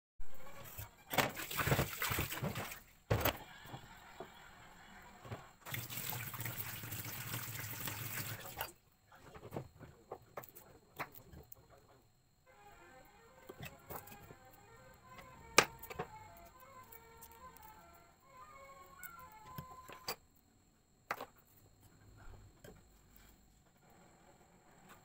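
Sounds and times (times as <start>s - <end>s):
tap water running: 1.2s - 2.8s, 5.6s - 8.7s.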